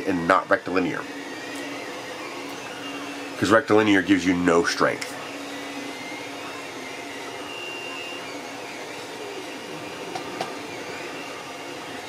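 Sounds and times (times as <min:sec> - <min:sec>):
machinery whirring: 0:00.0 - 0:12.0.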